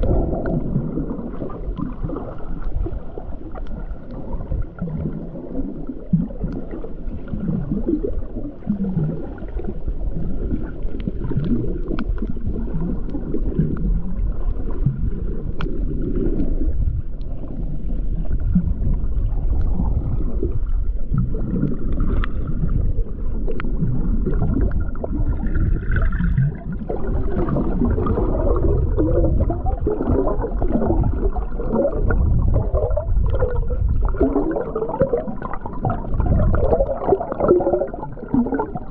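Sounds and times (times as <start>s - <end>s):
muffled water gurgling and bubbling: 0.0s - 38.9s.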